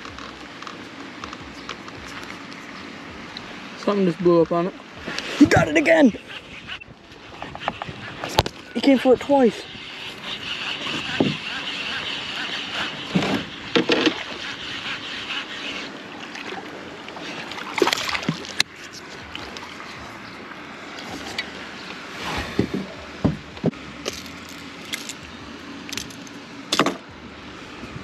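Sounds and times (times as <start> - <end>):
steady rustle: 5.0 - 16.2.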